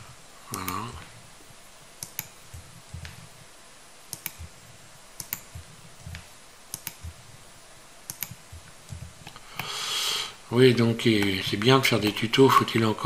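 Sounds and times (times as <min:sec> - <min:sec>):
mouse clicking: 0:02.0 - 0:03.2, 0:04.1 - 0:04.6, 0:05.2 - 0:07.2, 0:08.0 - 0:09.7.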